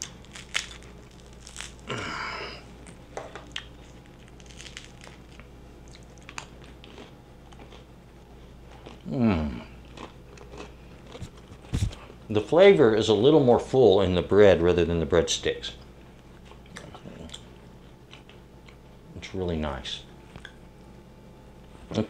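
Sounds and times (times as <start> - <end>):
bread crust crunching: 0.0 - 7.9, 8.5 - 12.1
person humming mmm: 1.8 - 2.7, 9.0 - 9.8.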